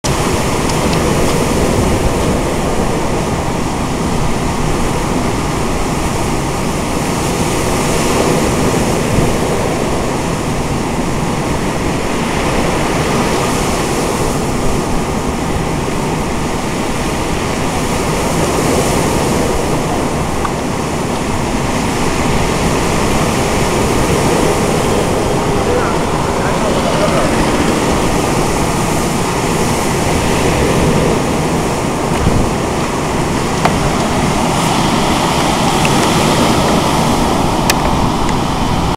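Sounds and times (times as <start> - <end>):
wind rumbling on microphone: 0.0 - 38.9
surf breaking on pebble beach: 16.6 - 38.9.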